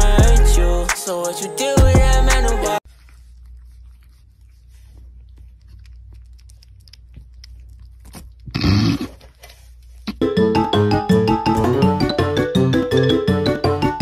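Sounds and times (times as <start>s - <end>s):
music: 0.0s - 2.8s, 10.2s - 14.0s
kittens chewing and crunching: 2.8s - 10.2s.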